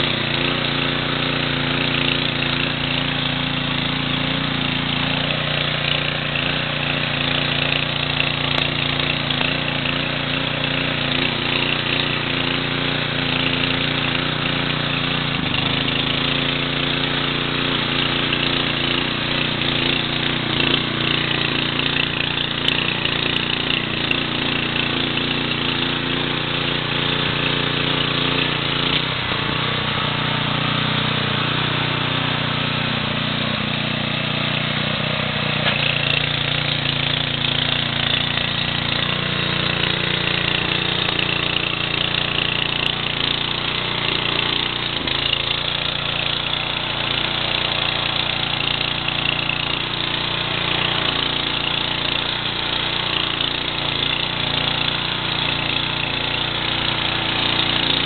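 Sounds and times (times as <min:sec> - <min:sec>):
tiller engine running under load: 0:00.0 - 0:58.0.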